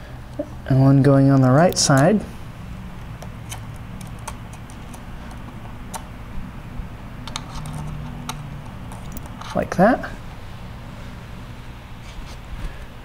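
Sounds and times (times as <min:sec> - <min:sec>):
clicks of handling terminals: 0:03.0 - 0:06.1, 0:07.2 - 0:09.6.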